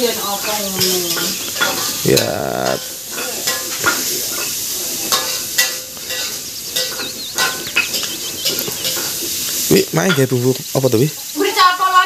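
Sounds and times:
food sizzling in a wok: 0.0s - 12.0s
metal spatula scraping pan: 2.7s - 9.5s.

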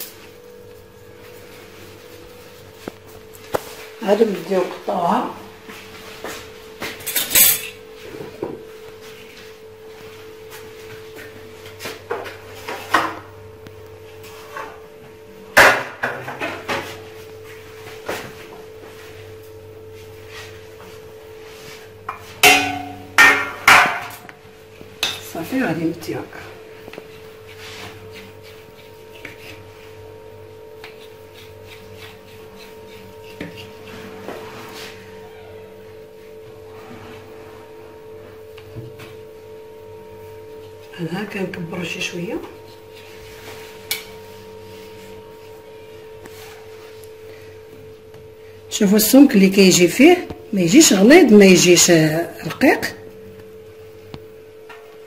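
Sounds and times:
steady hum: 0.0s - 55.0s
knife cutting dough on stone: 30.8s - 33.8s.

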